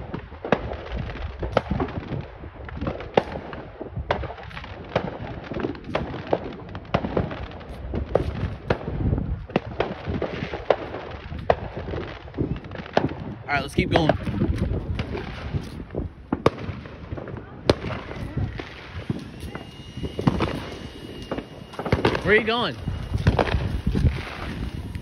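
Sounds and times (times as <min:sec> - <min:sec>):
distant fireworks bangs: 0:00.4 - 0:25.0
low rumble: 0:13.8 - 0:25.0.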